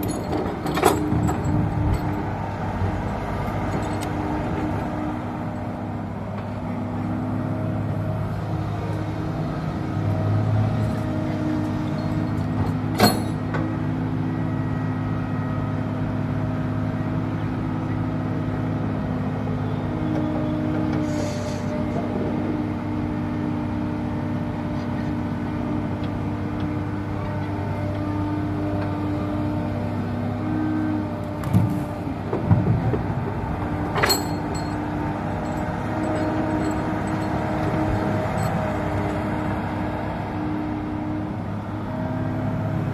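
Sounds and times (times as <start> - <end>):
excavator diesel engine running: 0.0 - 42.9
sharp metallic clanks: 33.9 - 39.1.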